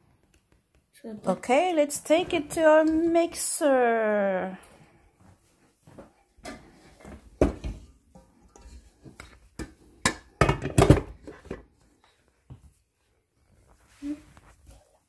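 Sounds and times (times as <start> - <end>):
bowl and utensils knocking: 7.4 - 11.3.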